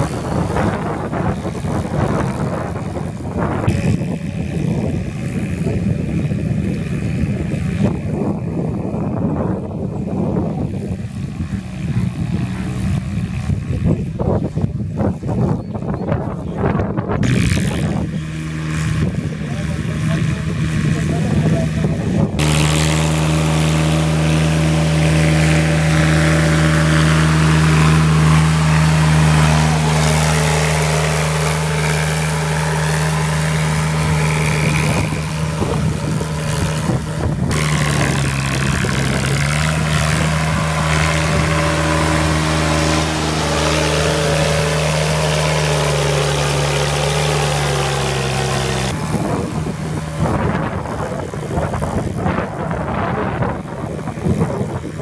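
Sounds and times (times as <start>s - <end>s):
tractor diesel engine running: 0.0s - 14.9s, 17.2s - 55.0s
rushing noise: 22.4s - 52.4s.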